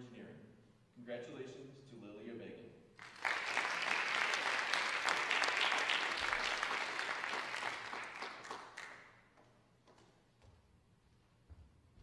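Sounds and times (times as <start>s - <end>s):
audience applause: 3.0s - 9.1s.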